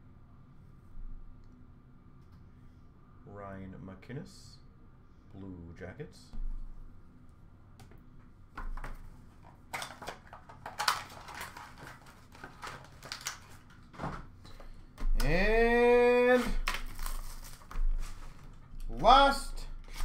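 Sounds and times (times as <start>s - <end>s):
card packs clicking and rustling: 8.6s - 15.4s, 16.2s - 19.0s.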